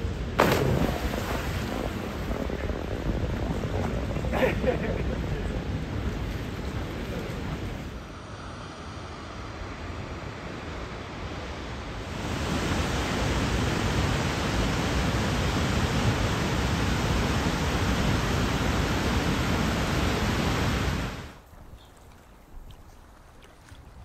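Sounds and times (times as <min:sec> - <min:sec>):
waterfall rushing: 0:12.0 - 0:21.4.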